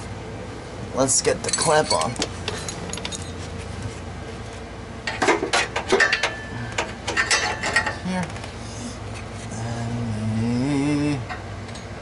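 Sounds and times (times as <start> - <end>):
metal clinks and scrapes: 1.4 - 3.6, 5.1 - 8.0.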